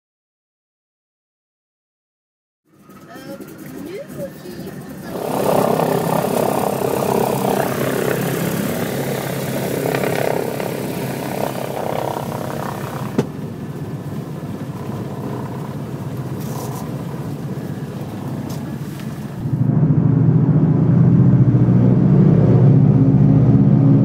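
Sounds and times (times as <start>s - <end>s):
aircraft piston engine running: 2.7s - 21.6s.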